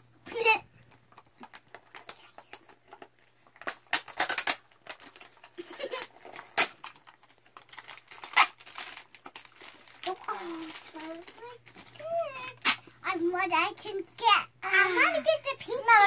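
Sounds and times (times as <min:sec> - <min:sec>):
wrappers crinkling and tearing: 0:00.9 - 0:13.0.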